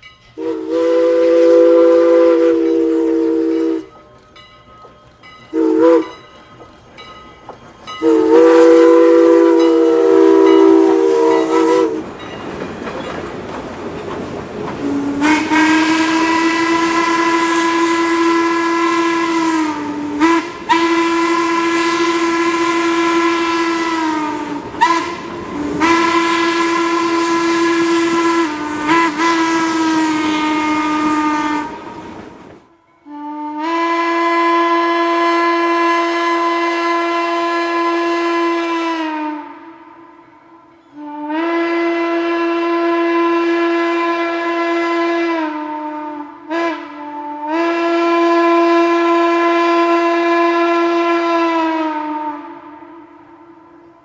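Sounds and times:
steam whistle blasts: 0.4 - 4.0, 5.5 - 6.2, 8.0 - 12.1, 14.8 - 32.2, 33.0 - 53.9
train wheels clattering: 2.5 - 32.7.

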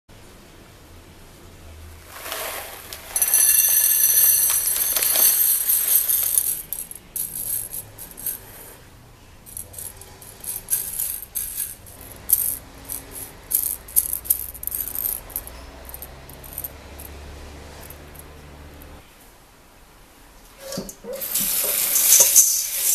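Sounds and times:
dried beans poured onto a plate: 2.0 - 8.6, 9.6 - 16.6
beans clicking on a plate: 2.2 - 8.5, 9.6 - 16.7.

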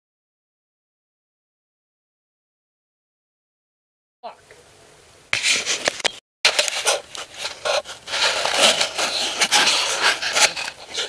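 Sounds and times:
dry corn stalks crackling and scraping: 6.5 - 11.0.

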